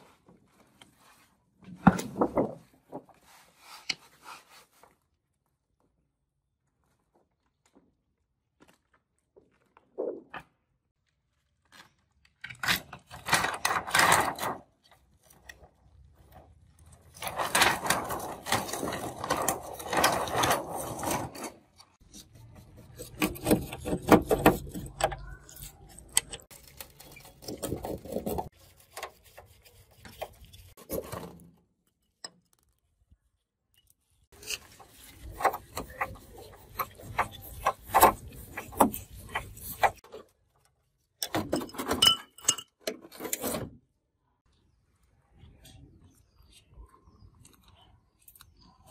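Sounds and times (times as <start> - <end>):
screwdriver scraping and clicking: 17.2 - 30.8.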